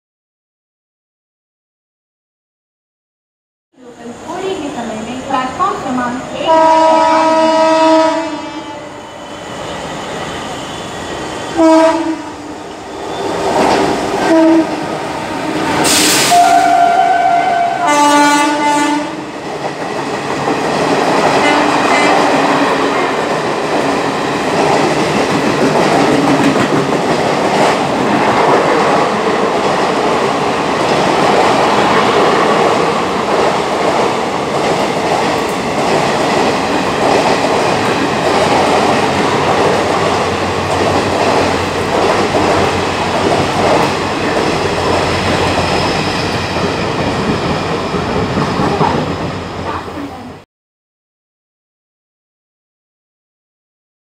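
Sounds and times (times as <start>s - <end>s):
train horn blasts: 6.4s - 9.0s, 11.6s - 12.4s, 14.2s - 14.8s, 15.9s - 19.2s
train wheels clickety-clack on track: 13.0s - 16.8s, 19.3s - 50.3s.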